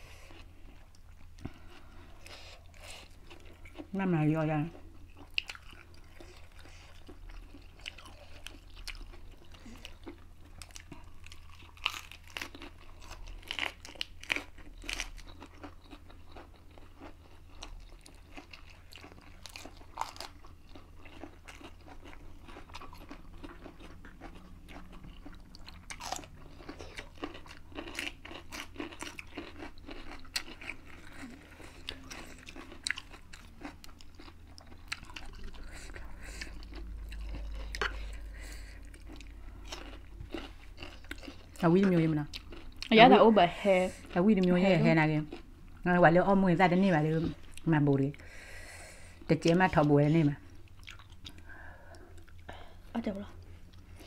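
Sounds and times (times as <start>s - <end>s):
crunching lettuce: 7.8s - 16.0s.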